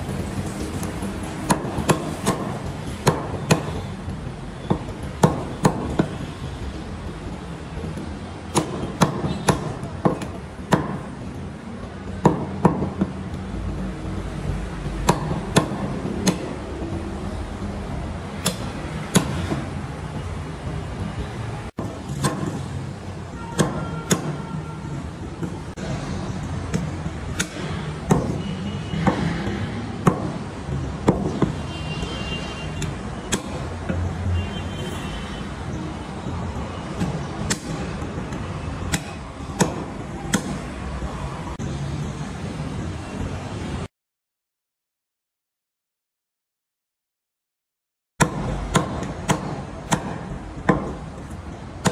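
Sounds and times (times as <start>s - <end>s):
cleaver chopping on wooden block: 8.5s - 11.0s, 18.4s - 19.7s, 21.8s - 22.6s, 23.6s - 24.4s, 26.7s - 28.4s, 37.0s - 40.7s, 48.2s - 51.0s.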